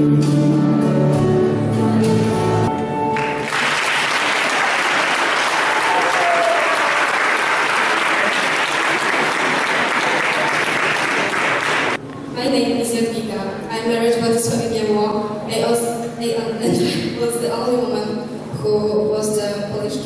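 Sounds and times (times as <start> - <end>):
song accompaniment held notes: 0.0 - 3.8
audience applause: 3.1 - 12.0.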